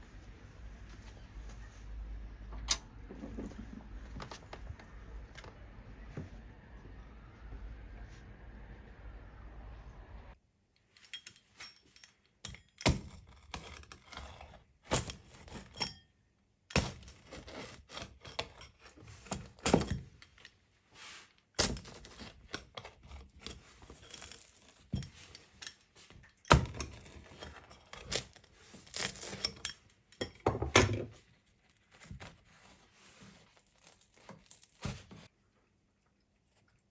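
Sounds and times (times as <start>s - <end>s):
pizza crust crackling: 26.9s - 29.7s.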